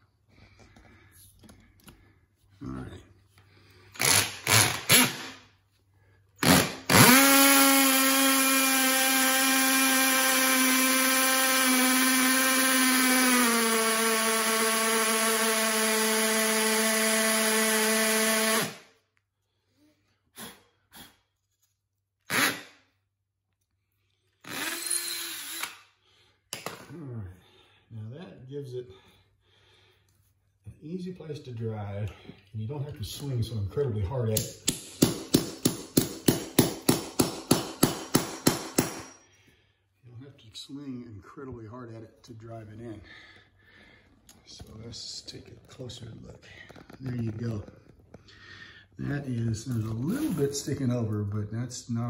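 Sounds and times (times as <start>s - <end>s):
hammer drill boring into concrete: 4.0s - 5.4s, 6.4s - 18.9s, 22.3s - 22.7s, 24.4s - 25.9s, 35.0s - 39.2s.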